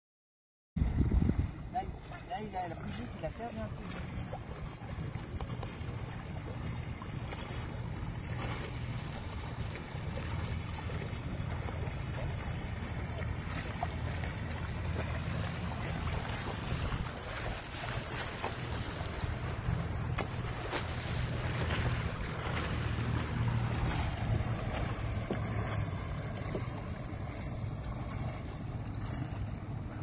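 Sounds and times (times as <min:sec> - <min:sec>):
wind buffeting microphone: 0:00.8 - 0:07.0, 0:12.8 - 0:30.0
waves lapping against kayak hulls: 0:00.8 - 0:30.0.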